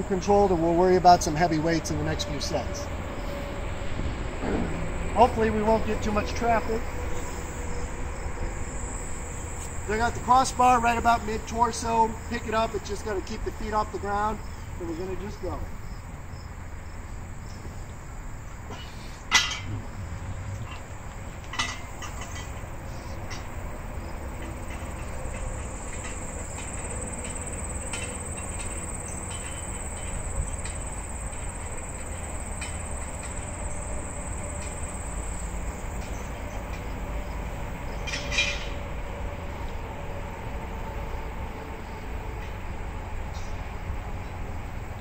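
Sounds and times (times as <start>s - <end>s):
high insect buzz: 6.8s - 11.5s
metallic clanks of steel frame: 18.7s - 19.9s, 20.6s - 23.5s, 24.4s - 33.5s, 38.0s - 38.8s.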